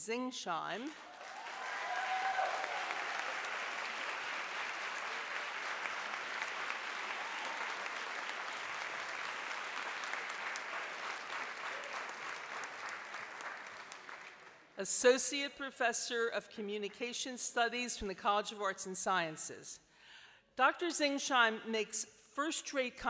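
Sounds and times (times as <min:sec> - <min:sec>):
audience applauding: 0:00.9 - 0:14.8.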